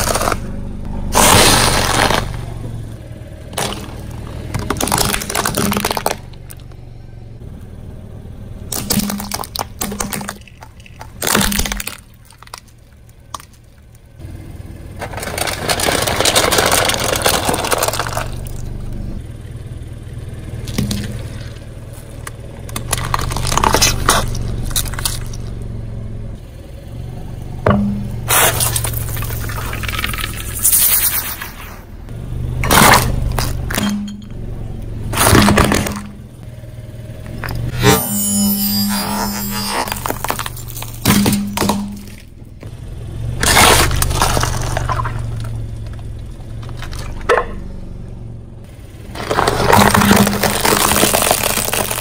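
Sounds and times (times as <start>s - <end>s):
tyre crushing snacks with cracking: 0.0s - 0.4s, 1.2s - 2.6s, 3.5s - 6.6s, 8.7s - 13.6s, 15.0s - 18.7s, 20.6s - 25.5s, 32.6s - 34.0s, 35.1s - 36.2s, 39.2s - 42.3s, 43.4s - 47.3s, 49.1s - 52.0s
low steady hum: 0.0s - 52.0s
foil bowls crumpling and scraping: 15.0s - 18.6s, 43.4s - 45.5s, 49.1s - 52.0s.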